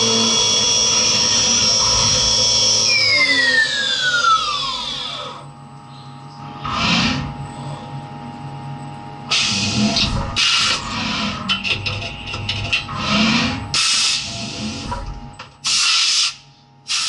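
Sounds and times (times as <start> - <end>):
milling machine spindle whine: 0.0 - 5.6, 6.4 - 15.3
machine hum: 0.0 - 15.7.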